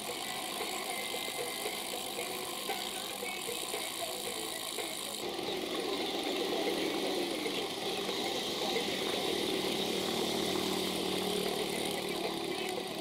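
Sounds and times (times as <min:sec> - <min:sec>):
car engines: 0:00.0 - 0:13.0
motorcycle engines: 0:00.0 - 0:13.0
road and wind noise hiss: 0:00.0 - 0:13.0.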